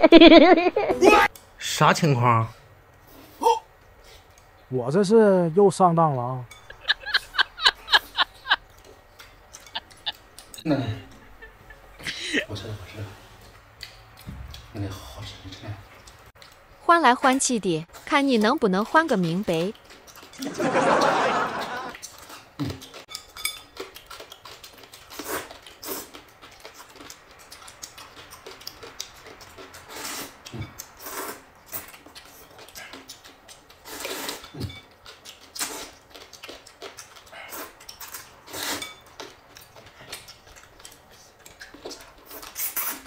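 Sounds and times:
chopsticks clinking on bowls: 0:06.4 - 0:11.2, 0:21.9 - 0:24.6
slurping and chewing noodles: 0:18.8 - 0:43.0.

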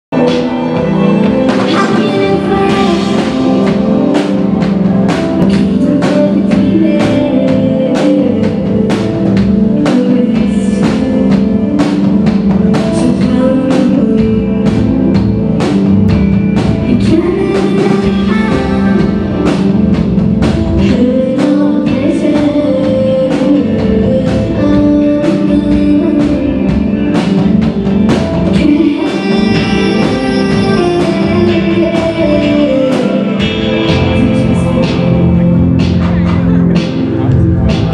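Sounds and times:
live pop band playing: 0:00.1 - 0:37.9
woman singing into microphone: 0:00.2 - 0:15.5, 0:16.8 - 0:19.8, 0:20.6 - 0:27.4, 0:28.4 - 0:35.8.

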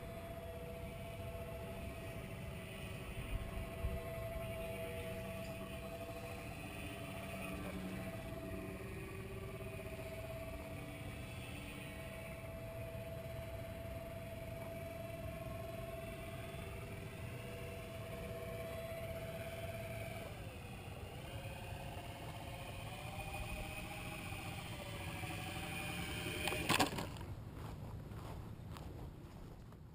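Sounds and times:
electric motors whining: 0:00.0 - 0:27.3
model plane thump on grass: 0:26.4 - 0:27.2.

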